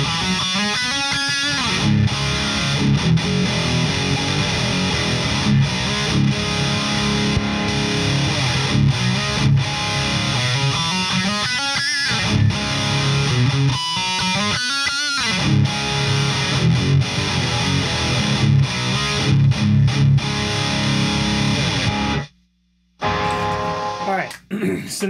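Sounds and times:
distorted electric guitar riffing: 0.0s - 22.4s, 23.0s - 24.5s.

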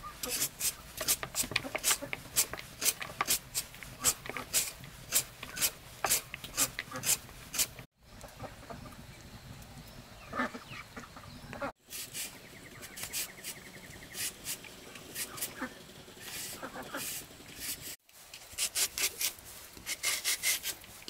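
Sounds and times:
carrot rasping on shredder: 0.2s - 7.8s, 11.9s - 20.9s.

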